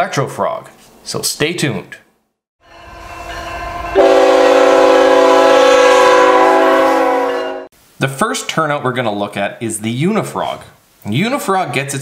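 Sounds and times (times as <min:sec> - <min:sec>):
low rumble: 0:02.7 - 0:05.0
locomotive air horn: 0:02.7 - 0:07.7.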